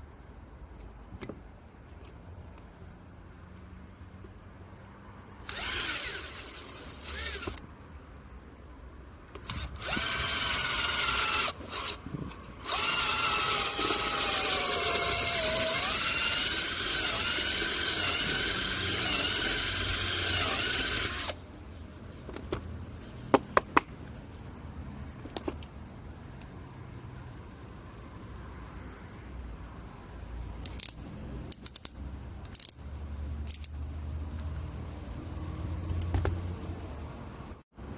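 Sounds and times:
cordless drill motor whine: 5.5 - 7.6, 9.5 - 12.0, 12.6 - 21.4.

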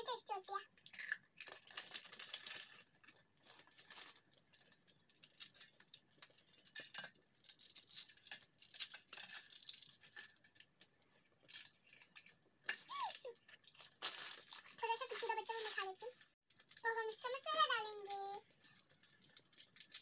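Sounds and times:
dry noodles snapping and crumbling: 0.8 - 15.2
plastic wrapper crinkling: 0.8 - 20.0.

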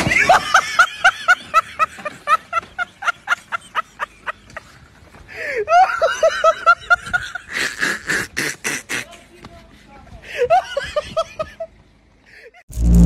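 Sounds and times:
person laughing hard: 0.0 - 4.7, 5.4 - 9.3, 10.3 - 11.7.

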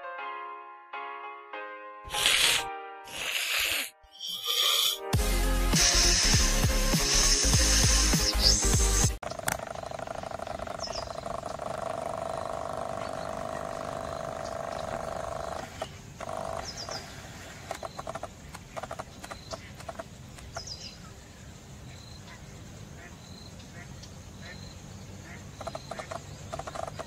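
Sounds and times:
high quick chirps: 5.6 - 9.2.

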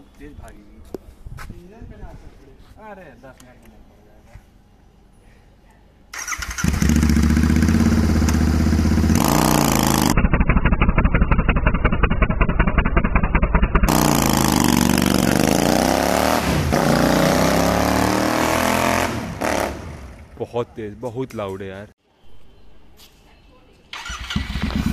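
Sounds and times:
motorcycle engine revving hard: 6.2 - 20.2.

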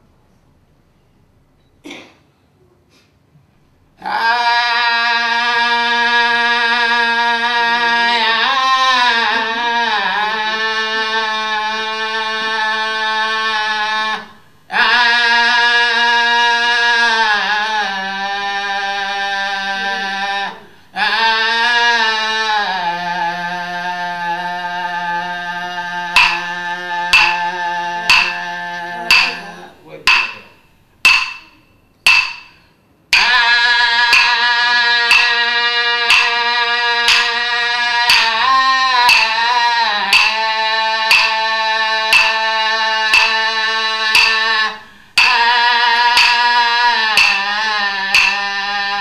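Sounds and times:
sharp knocks: 26.2 - 37.5, 38.1 - 48.7.

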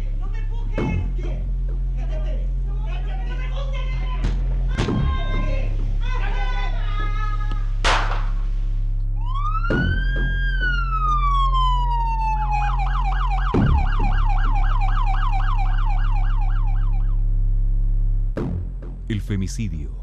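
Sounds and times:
steady low drone: 0.0 - 20.0
emergency vehicle siren: 9.1 - 17.3.

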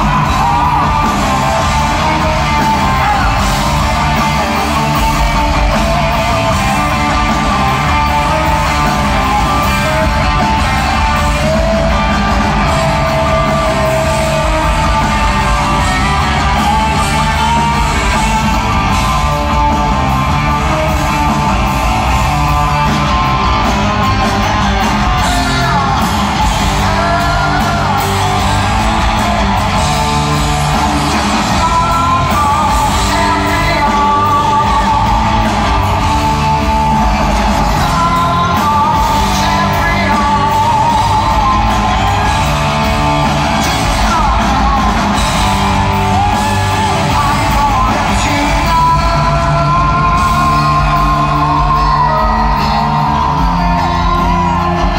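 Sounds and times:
man singing: 0.0 - 21.5, 22.3 - 54.9
drums: 0.0 - 54.9
electric guitars: 0.0 - 54.9.

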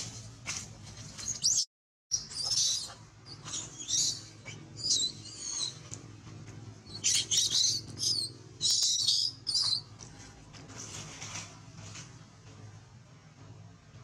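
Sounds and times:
baby monkey screaming: 1.4 - 5.9, 6.9 - 9.9.

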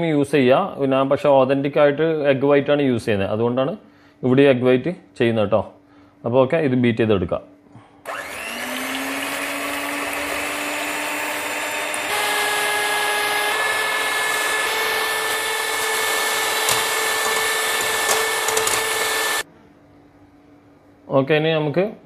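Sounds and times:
electric hand mixer whirring: 8.0 - 19.5.

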